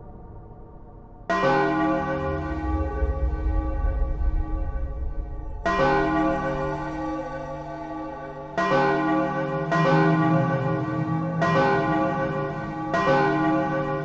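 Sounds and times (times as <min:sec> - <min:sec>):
deep bell-like tone: 0:00.0 - 0:14.0.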